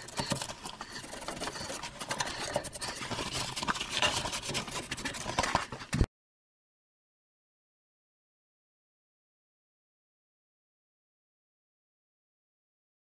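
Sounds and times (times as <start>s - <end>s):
cloth rag rubbing on metal: 0.0s - 6.0s.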